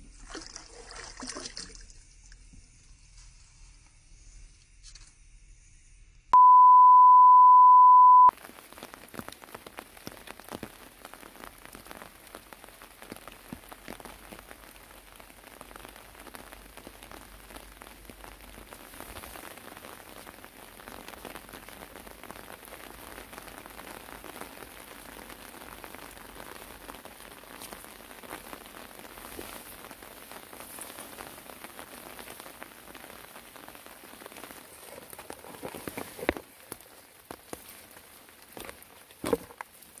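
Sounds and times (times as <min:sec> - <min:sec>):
test tone beep: 0:06.4 - 0:08.3
light rain pattering: 0:08.3 - 0:40.0.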